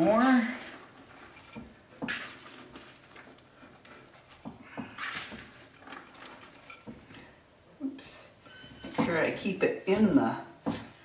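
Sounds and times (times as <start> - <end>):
cabbage rustling: 0.0 - 6.9.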